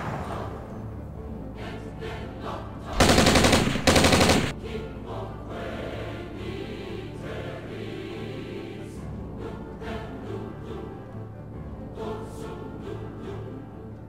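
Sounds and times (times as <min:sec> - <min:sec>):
background music: 0:00.0 - 0:14.0
machine-gun fire: 0:03.0 - 0:04.6.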